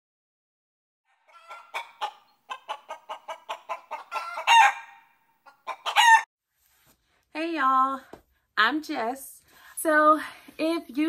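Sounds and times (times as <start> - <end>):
chicken clucking: 1.1 - 6.2
chicken squawk: 1.1 - 6.3.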